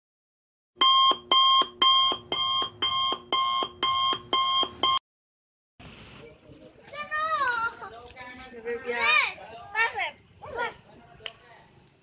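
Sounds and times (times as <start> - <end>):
electronic alarm beeping: 0.8 - 5.0.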